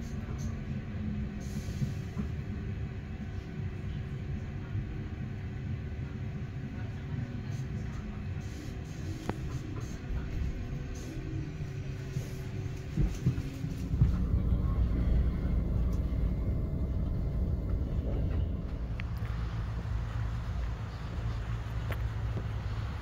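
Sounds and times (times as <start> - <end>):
vehicle rumble: 8.4 - 23.0.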